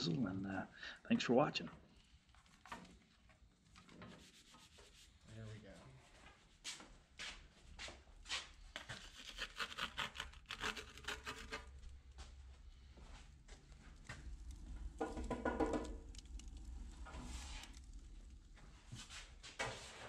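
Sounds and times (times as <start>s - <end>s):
wood fire crackling: 1.8s - 5.4s, 6.4s - 20.0s
pizza rubbing on metal peel: 8.8s - 11.8s.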